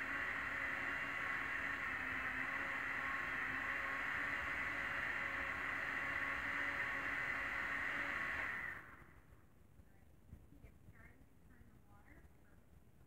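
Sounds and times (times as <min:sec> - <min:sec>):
blender motor whining: 0:00.0 - 0:09.2.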